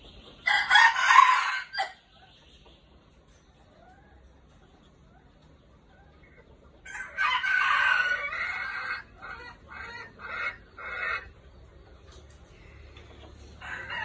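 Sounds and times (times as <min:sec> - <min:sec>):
rooster crowing: 0:00.5 - 0:02.0, 0:06.9 - 0:08.9, 0:13.6 - 0:14.0
rooster clucking: 0:05.9 - 0:12.2.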